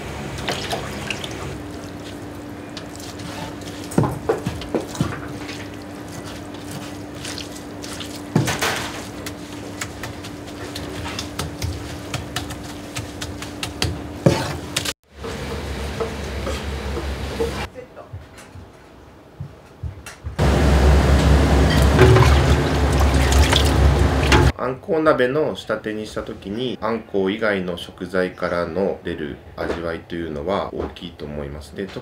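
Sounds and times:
steady hum: 0.0 - 17.9, 20.4 - 24.5
wet food splashing in steel tray: 21.8 - 24.5.

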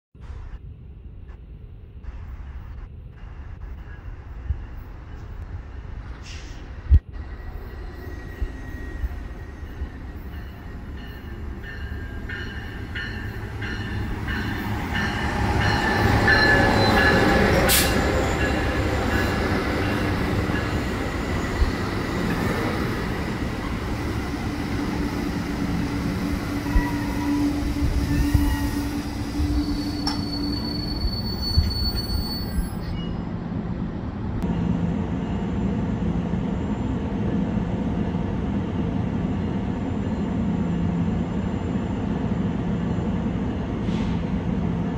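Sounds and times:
rumbling train wheels: 0.2 - 44.9
steady low train hum: 0.2 - 44.9
train braking to a stop: 3.7 - 33.4, 43.8 - 44.4
thin squealing tones: 26.5 - 33.3.

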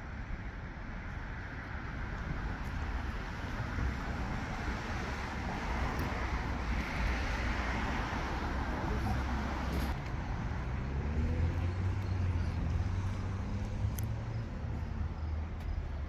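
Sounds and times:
road traffic rumble: 0.0 - 16.0
passing vehicle engine: 5.3 - 16.0.

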